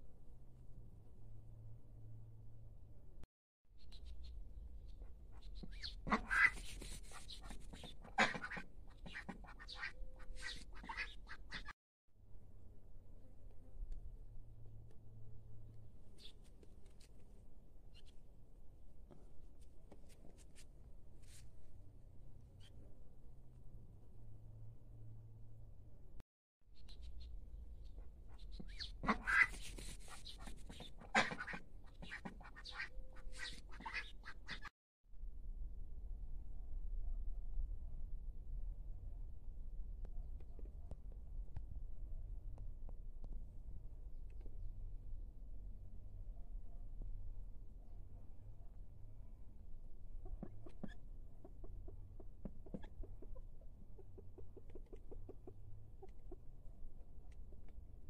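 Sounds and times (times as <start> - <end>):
ducks quacking: 5.8 - 11.7, 28.6 - 34.7.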